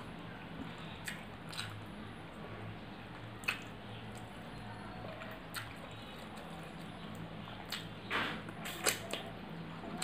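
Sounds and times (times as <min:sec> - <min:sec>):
low steady hum: 0:00.0 - 0:10.0
squishy scrape: 0:08.2 - 0:09.3.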